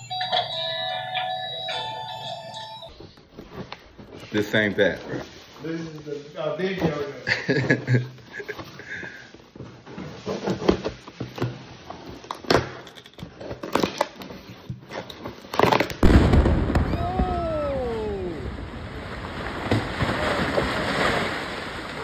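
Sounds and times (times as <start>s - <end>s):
explosion with crackling: 16.0s - 22.0s.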